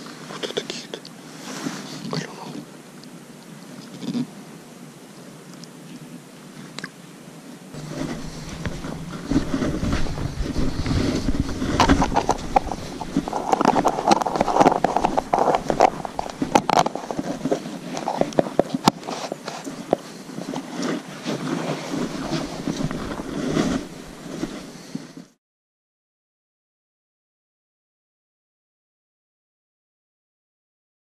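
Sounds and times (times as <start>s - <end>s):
footsteps: 7.8s - 25.4s
jacket rustling against microphone: 7.8s - 25.4s.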